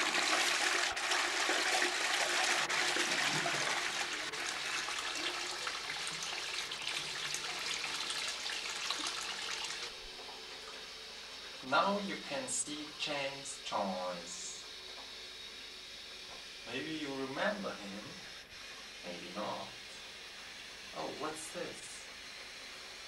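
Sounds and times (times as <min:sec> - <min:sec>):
toilet flushing: 0:00.0 - 0:10.8.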